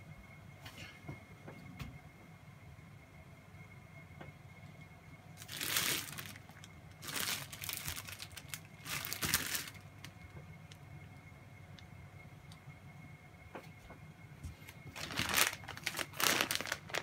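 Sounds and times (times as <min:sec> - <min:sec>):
plastic bread bag crinkling: 0:05.4 - 0:10.2, 0:14.6 - 0:17.0.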